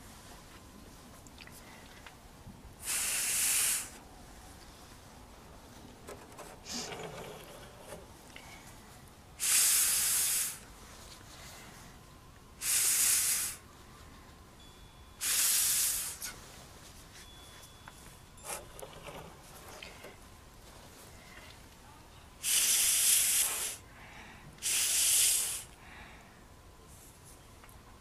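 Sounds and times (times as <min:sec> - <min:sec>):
hissing bursts of air: 0:02.8 - 0:04.0, 0:06.6 - 0:08.0, 0:09.4 - 0:11.0, 0:12.6 - 0:13.7, 0:15.2 - 0:16.4, 0:22.4 - 0:23.9, 0:24.6 - 0:25.8.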